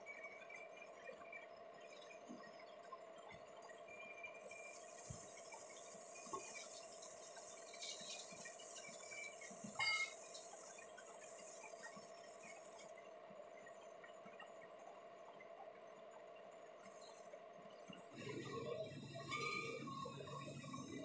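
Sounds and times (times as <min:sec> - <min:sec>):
steady machine hum: 0:04.1 - 0:21.0.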